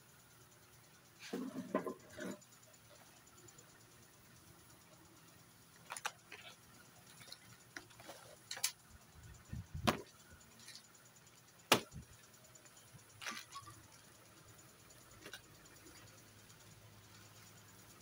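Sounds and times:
objects knocking and clicking: 1.2s - 2.5s, 9.5s - 10.9s
plastic crinkling: 5.8s - 6.5s, 13.2s - 13.7s.

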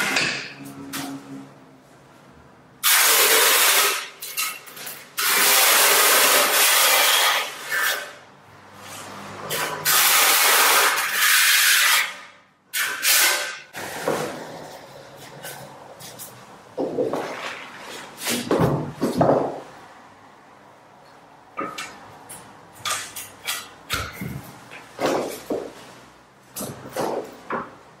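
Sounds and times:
trowel scraping tile adhesive: 5.2s - 8.2s, 9.0s - 12.2s, 12.8s - 14.4s.

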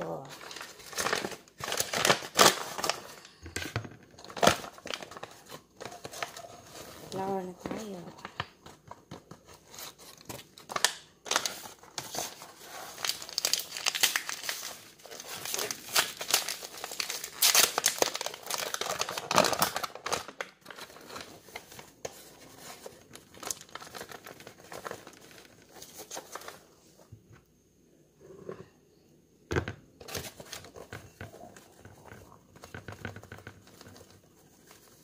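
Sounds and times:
paper bag crinkling and tearing: 0.0s - 3.3s, 9.8s - 26.6s.

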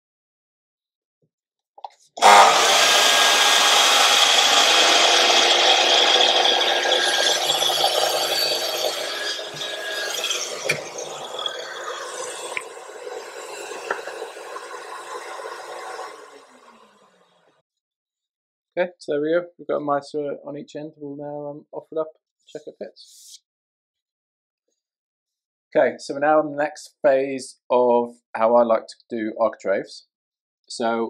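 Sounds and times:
mitre saw cutting wood: 2.2s - 17.1s.

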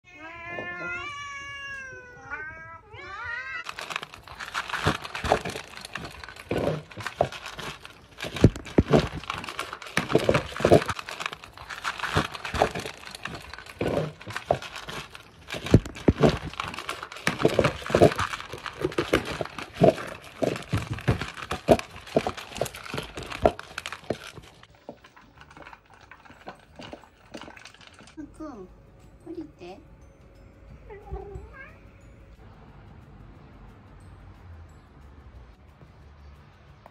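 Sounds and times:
cats meowing: 0.0s - 5.6s, 30.8s - 32.4s
clattering knocking and rustling: 3.7s - 28.2s.

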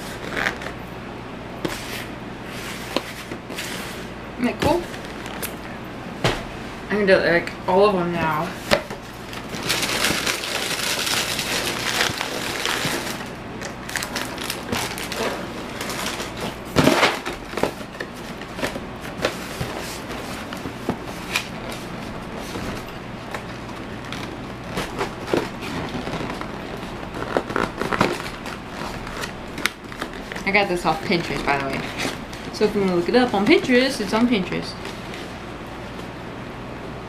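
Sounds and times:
cardboard rustling and clicking: 8.7s - 21.8s, 22.4s - 32.5s.

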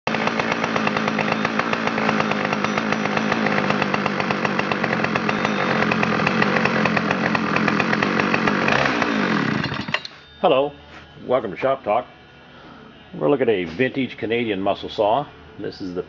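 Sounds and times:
chainsaw engine running: 0.1s - 10.2s.

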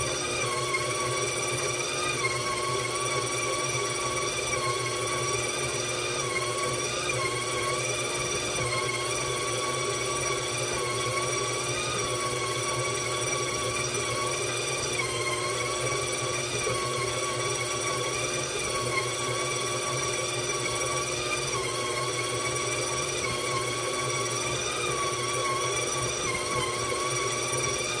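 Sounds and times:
stand mixer motor whining: 0.0s - 28.0s.

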